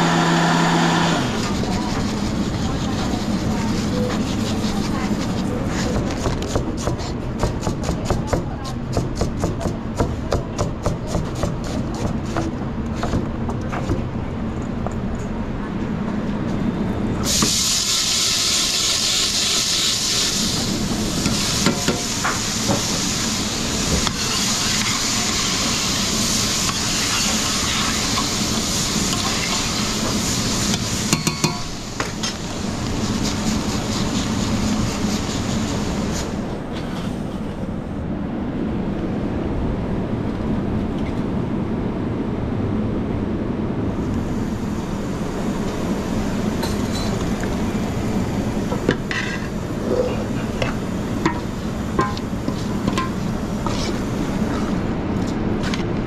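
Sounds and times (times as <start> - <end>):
food sizzling in a pan: 21.3 - 32.0.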